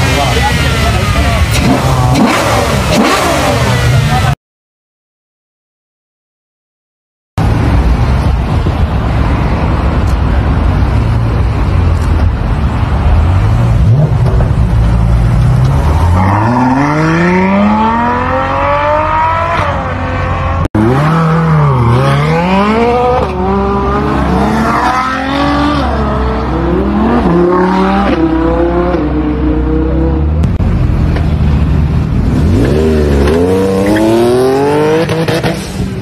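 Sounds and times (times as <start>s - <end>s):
supercar engine revving: 0.0s - 4.4s, 12.8s - 30.6s.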